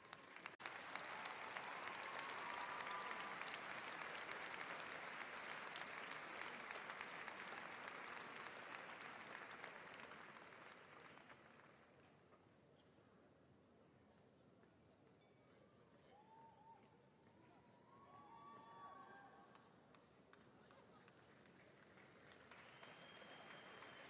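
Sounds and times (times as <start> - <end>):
audience applause: 0.0 - 11.9, 21.2 - 24.0.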